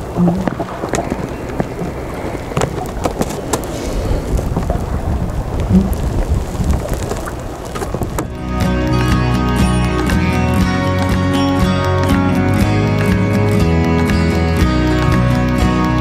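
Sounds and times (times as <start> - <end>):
knocks and clicks: 0.0 - 3.7
wind rumbling on microphone: 0.0 - 11.7.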